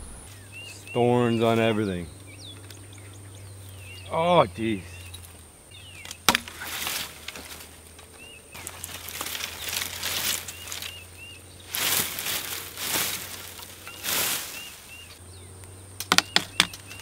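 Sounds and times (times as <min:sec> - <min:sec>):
leafy brush rustling: 0:00.0 - 0:15.2
loppers snapping through branch: 0:06.0 - 0:11.0.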